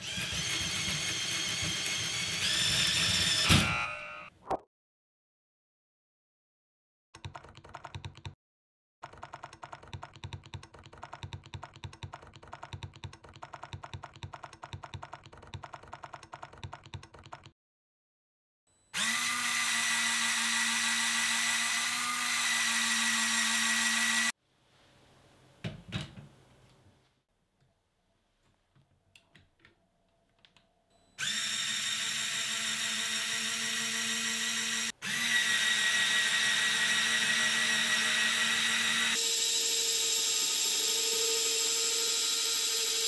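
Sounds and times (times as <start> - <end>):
electric motor and gear whine: 31.2 - 43.0.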